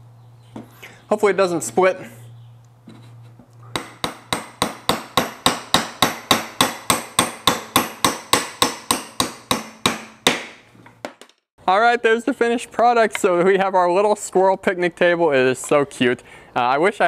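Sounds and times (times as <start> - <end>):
hammer driving a nail into wood: 3.7 - 11.4.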